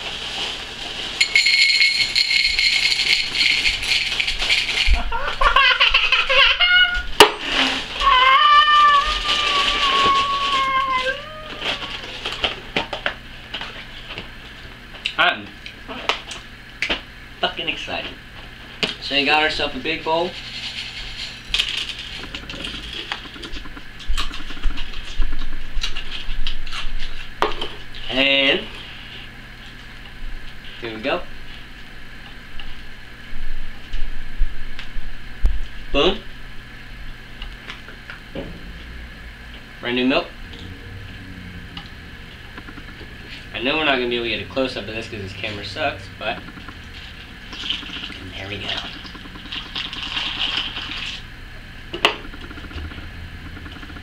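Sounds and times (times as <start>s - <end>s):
dry cereal rattling in a bowl: 0.0s - 5.1s, 20.1s - 23.0s
plastic bag rustling: 0.0s - 5.2s, 8.7s - 11.0s
thin high ring: 1.2s - 5.0s
cereal rattling into bowl: 1.2s - 5.1s.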